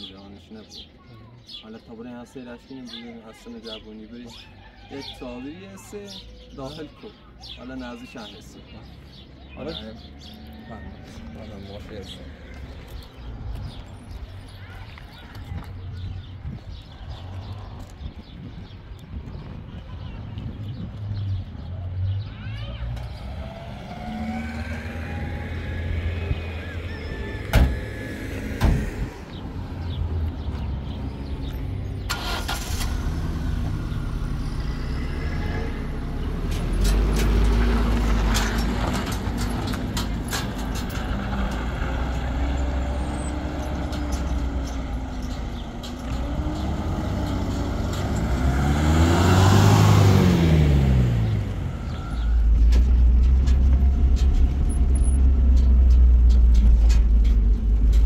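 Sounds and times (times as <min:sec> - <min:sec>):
truck engine driving off: 0:21.0 - 0:58.0
car passing by: 0:22.9 - 0:30.7, 0:46.1 - 0:52.2.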